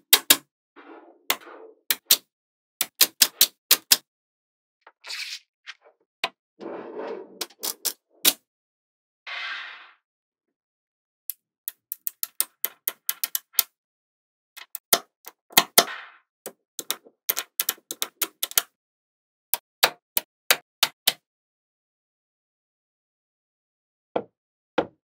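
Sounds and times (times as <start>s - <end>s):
magnetic balls clicking together: 11.7s - 13.7s, 16.8s - 18.7s.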